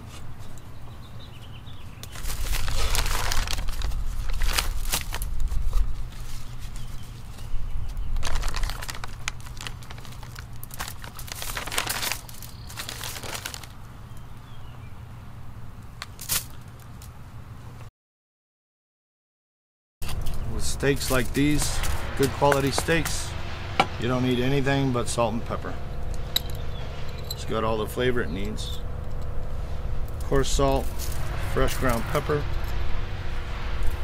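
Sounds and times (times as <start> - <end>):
rustling and crinkling: 1.8 - 13.8, 16.0 - 17.2, 28.9 - 32.0.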